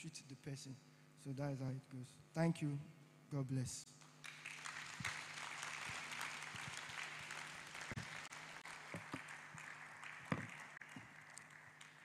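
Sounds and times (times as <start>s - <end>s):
congregation applauding: 4.0s - 12.0s
knocks: 10.3s - 10.5s.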